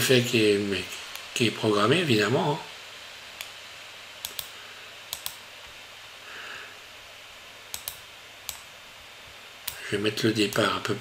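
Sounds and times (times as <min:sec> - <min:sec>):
low steady hiss: 0:00.0 - 0:11.0
computer mouse clicking: 0:03.4 - 0:03.6, 0:04.2 - 0:05.4, 0:07.7 - 0:08.7.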